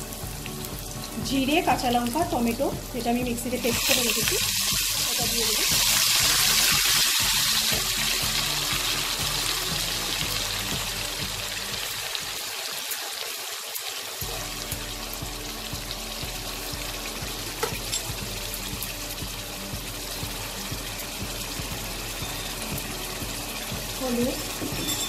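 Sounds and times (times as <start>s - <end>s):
paste sizzling in hot oil: 0.0s - 25.0s.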